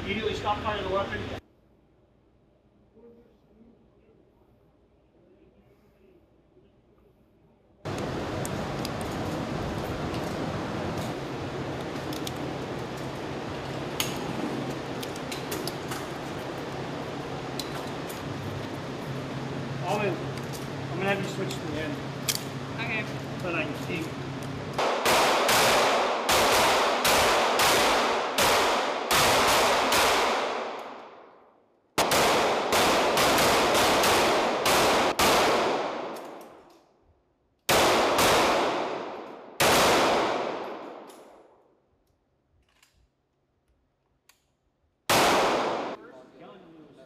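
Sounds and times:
pistol shots echoing indoors: 24.8s - 31.4s, 32.0s - 36.7s, 37.6s - 41.7s, 45.1s - 46.0s.

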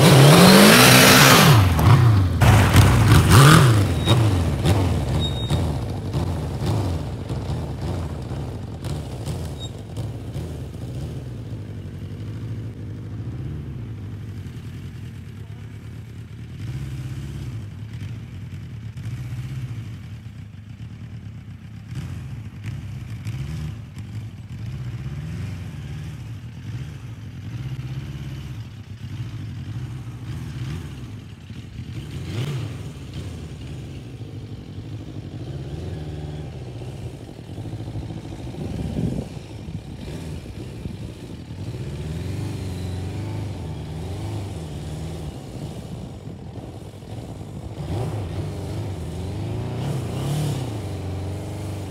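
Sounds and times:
motorbike engine revving: 0.0s - 13.6s, 21.7s - 51.9s.

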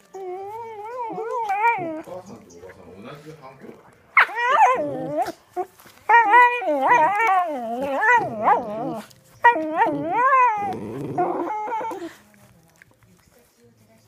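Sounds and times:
dog howling growls: 0.1s - 2.1s, 4.3s - 5.4s, 6.1s - 12.1s.

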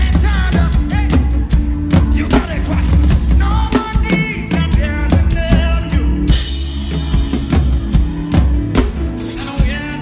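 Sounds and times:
live band music: 0.0s - 10.0s.

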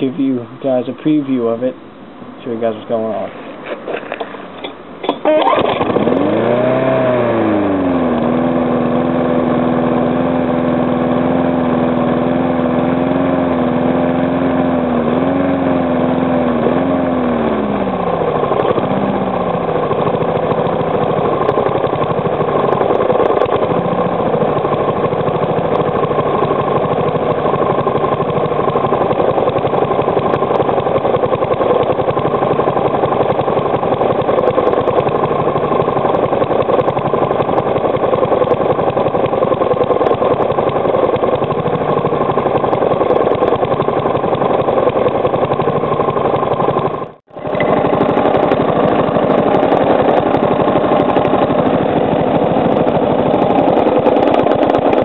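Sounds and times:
lawnmower engine running: 0.0s - 55.0s
engine knocking: 17.4s - 55.0s.

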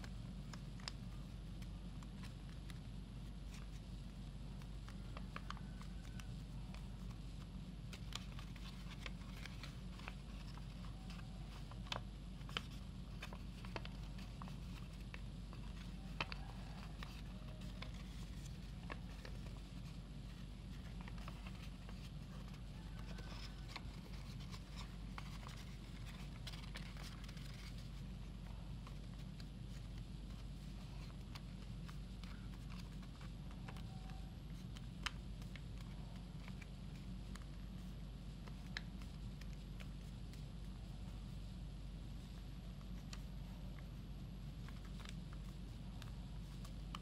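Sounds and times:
paper creasing clicks: 0.0s - 40.2s
paper crinkling: 0.0s - 41.4s, 42.1s - 47.0s
steady low hum: 0.0s - 47.0s.

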